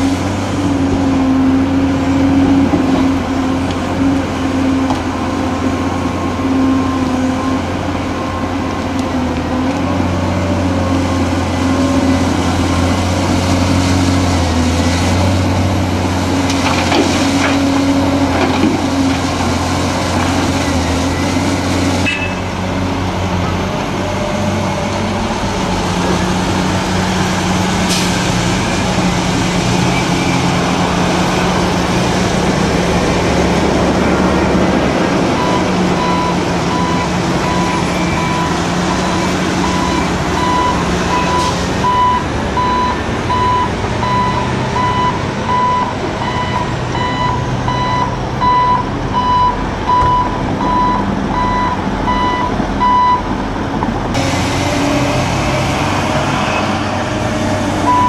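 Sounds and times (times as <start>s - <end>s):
heavy diesel engines running: 0.0s - 58.0s
truck reversing alarm beeping: 35.3s - 53.3s.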